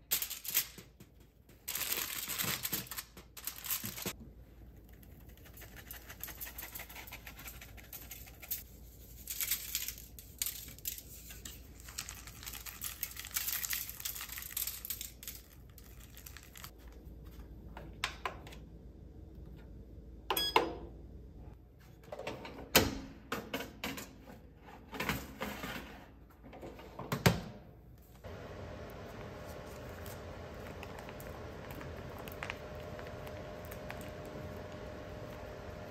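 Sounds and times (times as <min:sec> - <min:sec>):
oven beep: 0:20.3 - 0:20.9.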